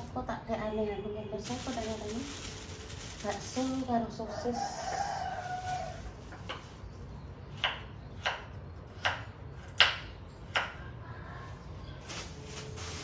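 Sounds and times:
knife chopping on cutting board: 0:07.5 - 0:10.8.

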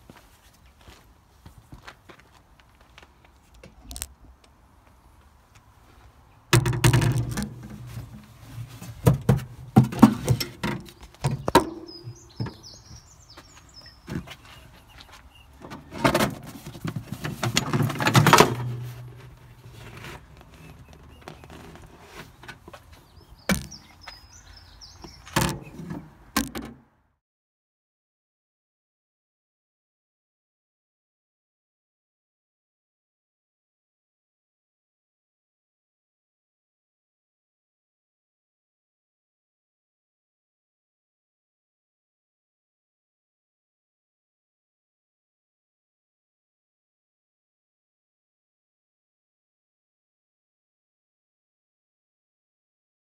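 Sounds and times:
phone handling knocks and rustles: 0:06.6 - 0:12.7, 0:23.5 - 0:23.9.

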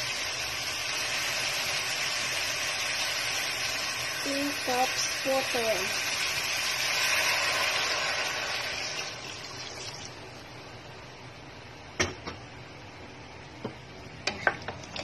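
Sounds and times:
water hissing in hot pan: 0:00.0 - 0:10.4.

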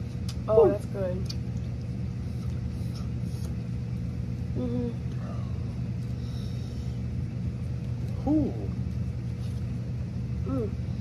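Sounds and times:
person saying mm: 0:04.6 - 0:05.0.

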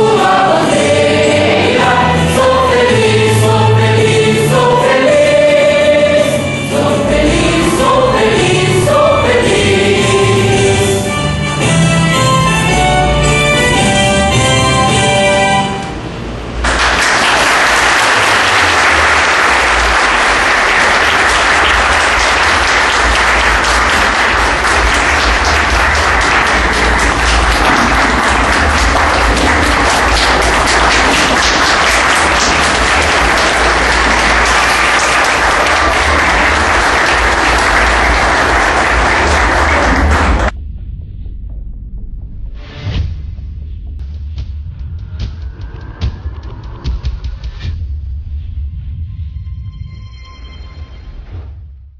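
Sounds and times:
choir music: 0:00.0 - 0:16.1, 0:18.8 - 0:40.5
audience applauding: 0:16.6 - 0:40.5.

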